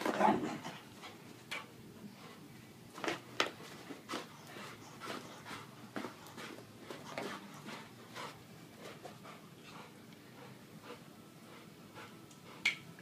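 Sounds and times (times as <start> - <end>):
dog panting hard: 3.5 - 12.7.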